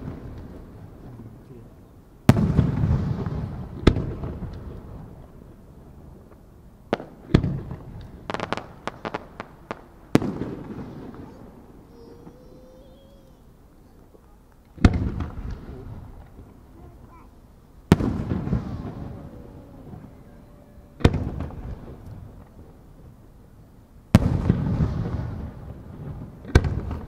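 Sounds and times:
sharp firework cracks: 0:00.0 - 0:01.4, 0:02.2 - 0:23.1, 0:24.1 - 0:27.0
low rolling echo: 0:00.0 - 0:27.0
firework shells bursting: 0:06.3 - 0:12.4, 0:13.4 - 0:22.8.

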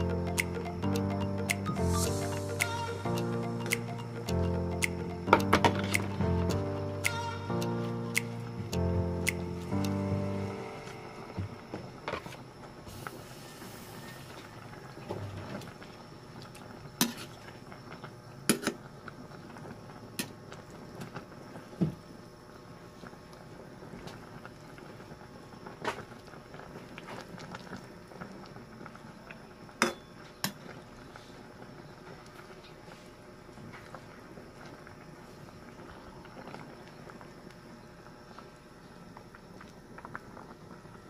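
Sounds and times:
soup bubbling in a pot: 0:12.0 - 0:41.0.

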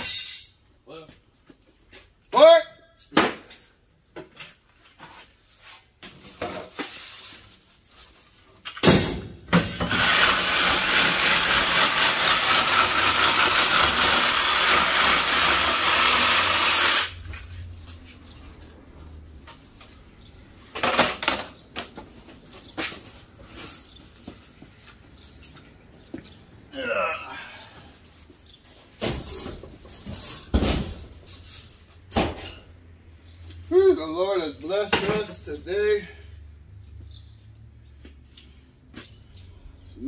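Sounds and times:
power saw grinding through metal: 0:09.8 - 0:17.3.

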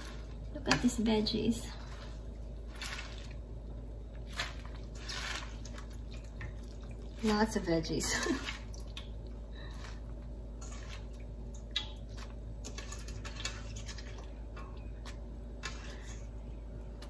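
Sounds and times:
faint low hum: 0:00.0 - 0:17.0
small wet plops: 0:10.7 - 0:15.2.

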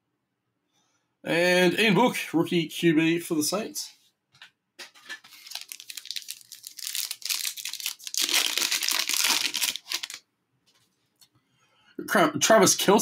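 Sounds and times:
foil wrapper tearing and crinkling: 0:05.2 - 0:10.2.

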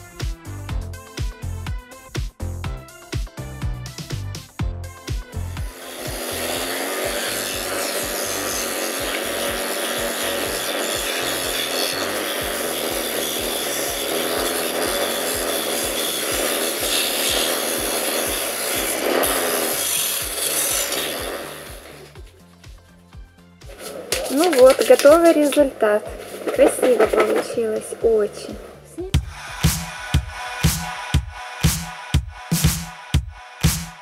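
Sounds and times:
abrasive wheel sanding wood: 0:05.4 - 0:22.3, 0:23.6 - 0:32.9.

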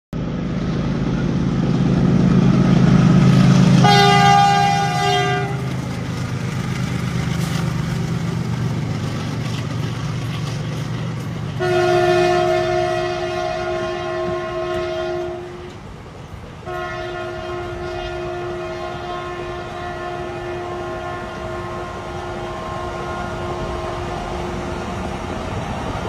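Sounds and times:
locomotive engine drone: 0:00.2 - 0:26.0
locomotive horn: 0:03.8 - 0:05.9, 0:11.5 - 0:15.9, 0:16.6 - 0:24.6.

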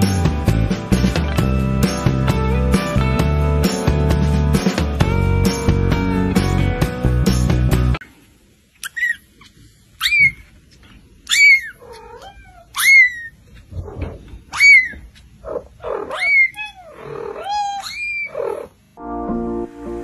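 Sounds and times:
cat meowing high-pitched: 0:11.3 - 0:13.3, 0:14.5 - 0:15.0, 0:16.0 - 0:18.6.

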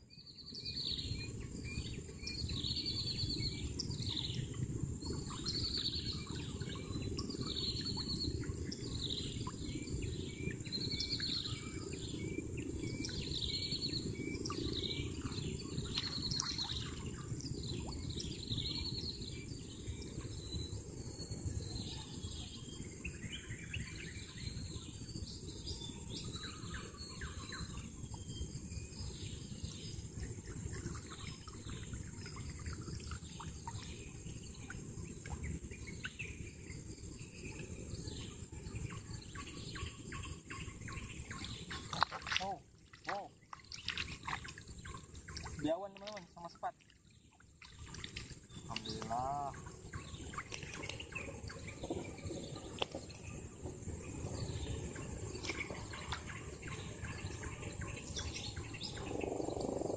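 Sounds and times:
birds chirping: 0:00.5 - 0:59.9
lower bird calls: 0:37.3 - 0:46.9, 0:47.7 - 0:59.9.

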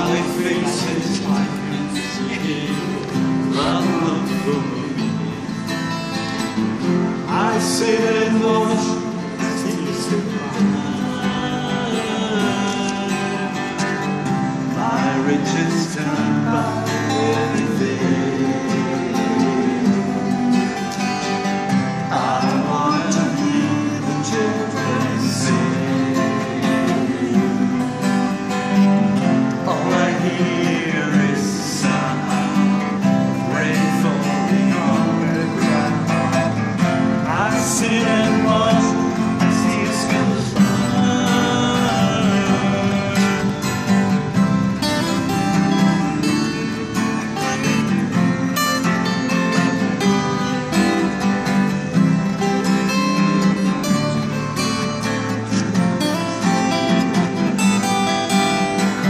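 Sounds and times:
man singing: 0:00.0 - 0:05.8, 0:07.2 - 0:59.0
acoustic guitars playing: 0:00.0 - 0:59.0.

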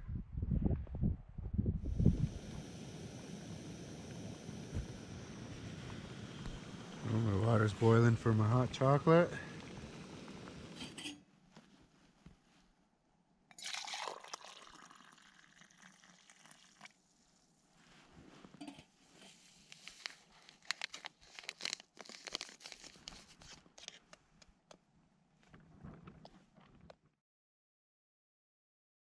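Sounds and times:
liquid pouring: 0:13.5 - 0:17.0
small clicks and crinkles: 0:17.9 - 0:27.1.

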